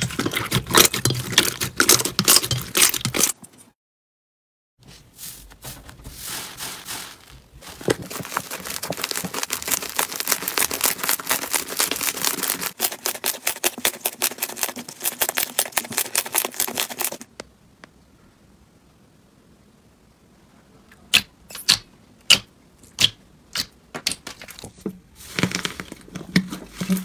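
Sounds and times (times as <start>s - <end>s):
slime squishing: 0.0s - 3.4s, 5.5s - 17.3s.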